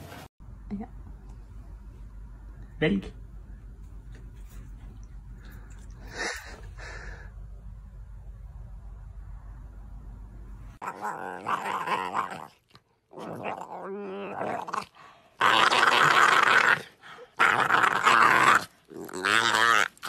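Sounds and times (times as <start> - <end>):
puppy play-growling: 10.8 - 20.0.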